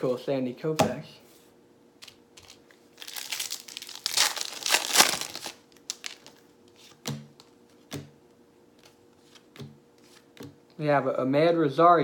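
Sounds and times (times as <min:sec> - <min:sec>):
foil wrapper tearing and crinkling: 0:02.0 - 0:06.4.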